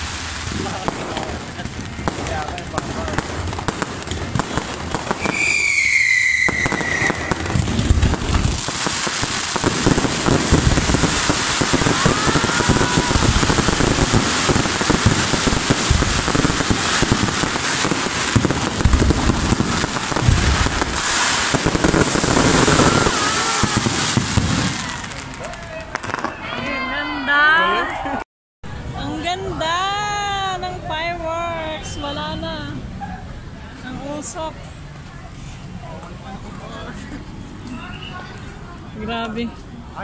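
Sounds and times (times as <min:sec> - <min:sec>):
fireworks shells bursting: 0:00.0 - 0:26.4
fireworks crackling: 0:00.0 - 0:26.9
falling firework whistle: 0:05.1 - 0:26.7.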